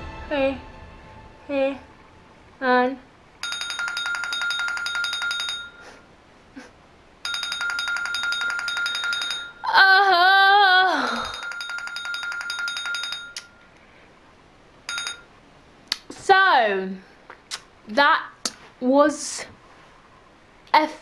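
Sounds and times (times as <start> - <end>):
timer alarm trilling ring: 3.4 - 6.0, 7.2 - 9.7, 11.0 - 13.6, 14.9 - 15.3
woman's wavering cry: 9.6 - 11.4.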